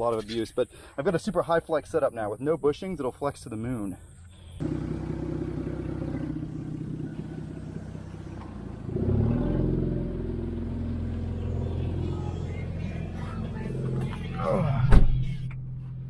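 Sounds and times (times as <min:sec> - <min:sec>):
car engine idling and revving: 0:04.4 - 0:16.0.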